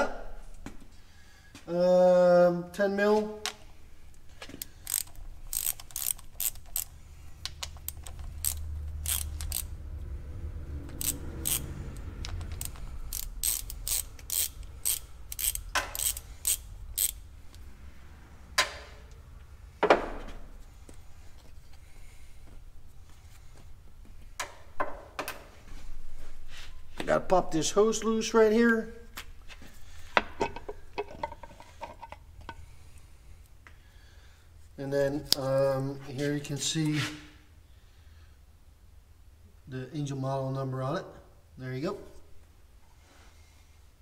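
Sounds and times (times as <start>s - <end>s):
ratchet wrench clicking: 4.5s - 9.8s, 10.8s - 17.6s.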